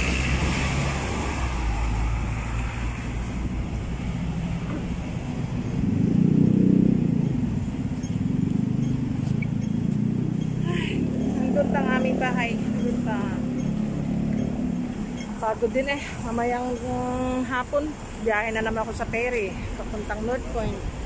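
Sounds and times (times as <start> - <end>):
loud passing engine: 0.0 - 15.2
vehicle engines running: 0.0 - 21.0.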